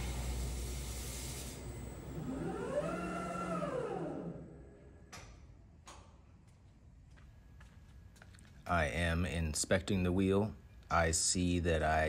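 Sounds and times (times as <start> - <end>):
motor whine: 0.0 - 4.9.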